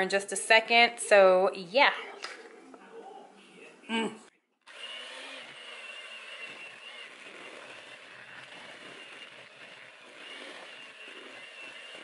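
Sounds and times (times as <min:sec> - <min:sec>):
beaters churning batter: 0:04.7 - 0:12.0
electric hand mixer whining: 0:04.7 - 0:12.0.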